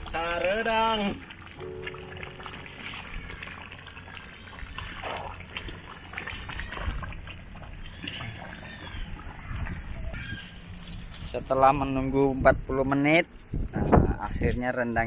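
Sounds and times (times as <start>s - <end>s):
faint ticks and scrapes: 10.7s - 11.4s.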